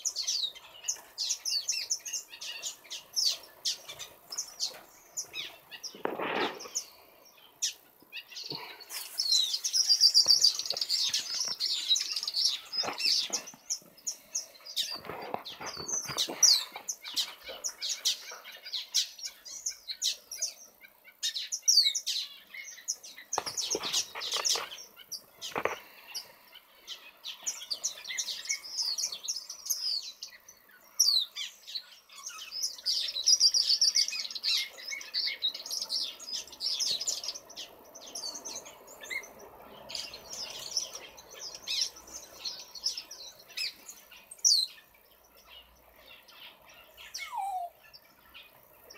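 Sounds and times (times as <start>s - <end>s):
finches chirping: 0.0s - 48.9s
brief rustles: 5.9s - 6.8s, 14.8s - 16.8s, 23.3s - 24.8s.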